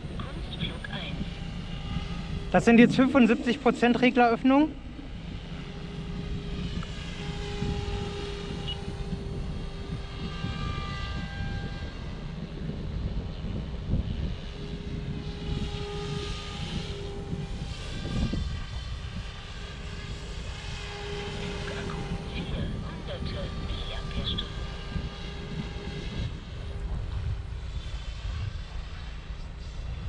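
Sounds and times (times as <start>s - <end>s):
low rumble: 0.0s - 30.0s
rc helicopter rotor whine: 0.0s - 30.0s.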